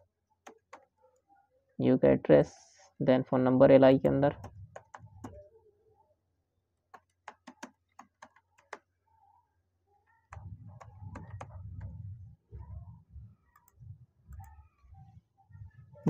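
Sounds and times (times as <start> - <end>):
keyboard typing: 0.4 - 0.9, 4.0 - 5.4, 6.9 - 8.9, 10.3 - 12.0.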